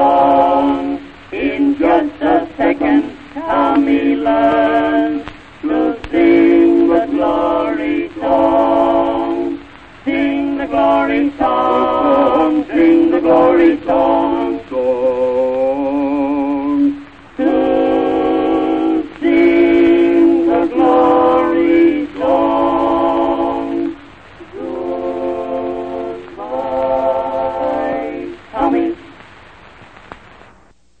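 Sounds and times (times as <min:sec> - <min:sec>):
voices singing in harmony: 0:00.0 - 0:29.2
faint hiss: 0:00.0 - 0:31.0.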